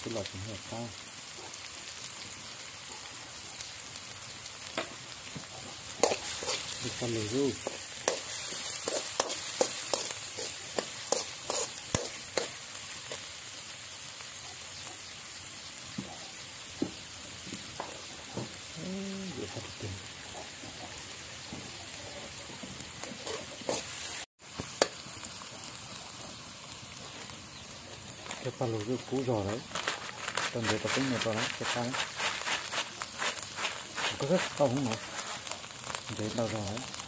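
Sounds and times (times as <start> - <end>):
food sizzling in a wok: 0.0 - 37.0
metal spatula scraping a pan: 6.0 - 13.3, 23.0 - 24.2, 29.6 - 35.6.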